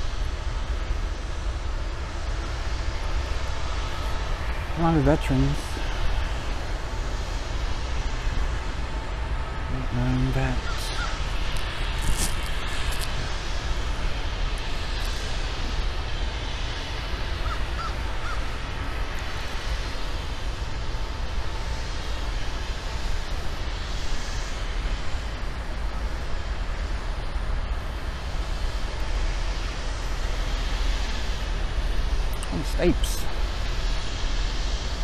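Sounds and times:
crows cawing: 0:10.6 - 0:11.3, 0:17.3 - 0:18.5.

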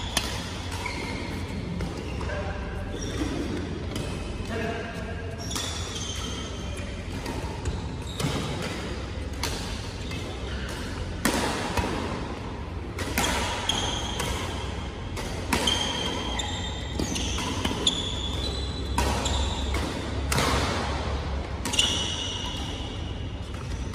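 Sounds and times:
racket striking shuttlecock: 0:00.0 - 0:02.0, 0:05.6 - 0:23.9
shoes squeaking on court: 0:00.0 - 0:09.3, 0:15.5 - 0:20.2, 0:21.6 - 0:23.9.

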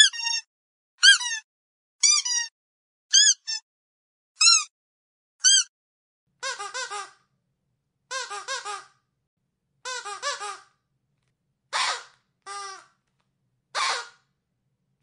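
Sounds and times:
squeaky dog toy squeaking: 0:00.0 - 0:02.5, 0:03.1 - 0:03.6, 0:04.4 - 0:04.7, 0:05.4 - 0:05.7, 0:06.4 - 0:07.2, 0:08.1 - 0:08.9, 0:09.8 - 0:10.7.

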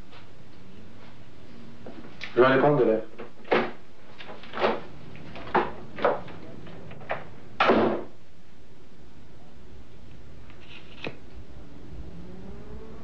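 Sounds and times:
door banging shut: 0:03.3 - 0:08.2.

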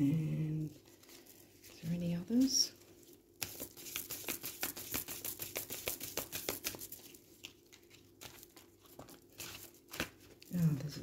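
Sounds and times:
cards riffled by hand: 0:03.4 - 0:11.0.

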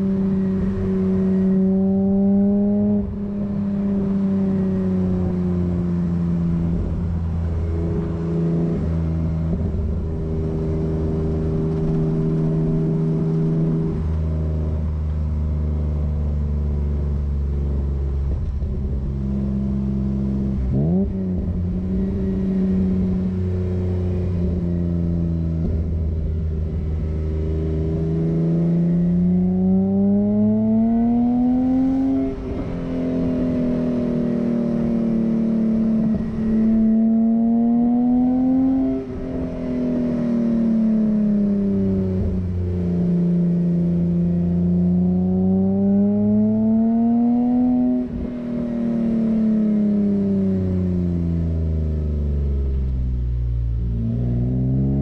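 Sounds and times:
car engine revving through exhaust: 0:00.0 - 0:55.0.

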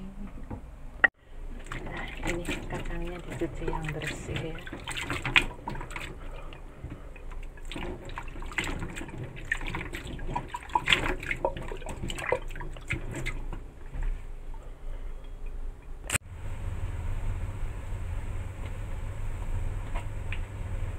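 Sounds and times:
water sloshing in a bowl: 0:01.5 - 0:14.7
hand rubbing beans in water: 0:01.6 - 0:13.5.

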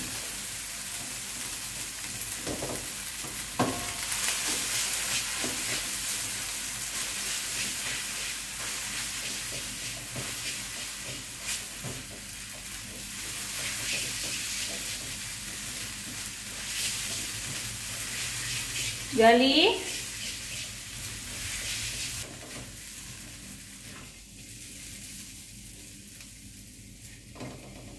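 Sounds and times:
food sizzling in a wok: 0:00.0 - 0:27.9
spatula scraping a pan: 0:06.9 - 0:19.1, 0:19.8 - 0:22.6.

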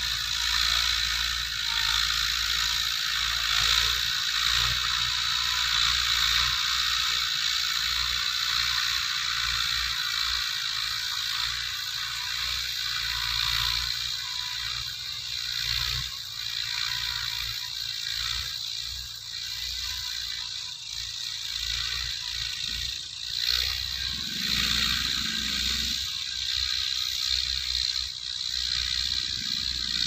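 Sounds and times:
rotary tiller churning soil: 0:00.0 - 0:30.0
tractor diesel engine under load: 0:23.7 - 0:26.2, 0:27.4 - 0:30.0.

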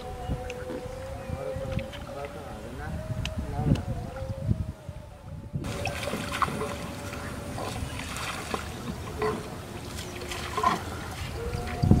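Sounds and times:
water trickling and splashing: 0:05.6 - 0:12.0.

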